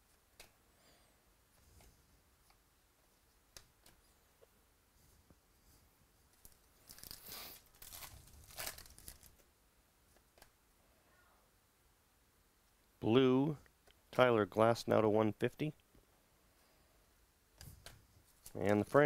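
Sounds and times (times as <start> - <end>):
foil wrapper tearing and crinkling: 6.8 - 9.4.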